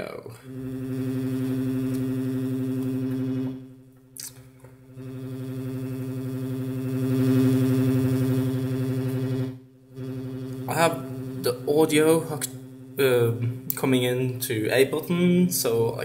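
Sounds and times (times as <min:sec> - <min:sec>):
synthesizer low sustained note: 0:00.0 - 0:04.0, 0:04.7 - 0:15.9
click: 0:01.8 - 0:02.1.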